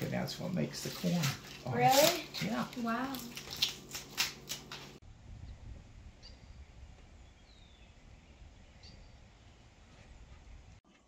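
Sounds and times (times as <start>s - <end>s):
corn husks tearing: 0.0s - 5.0s
low steady rumble: 5.0s - 10.8s
faint bird chirps: 6.2s - 10.4s.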